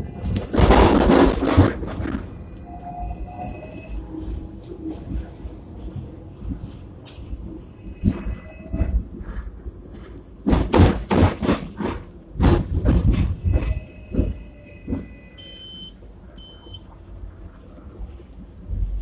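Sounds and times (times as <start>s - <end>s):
tram clattering knocks: 0.0s - 15.3s
short high beeps: 15.1s - 16.8s.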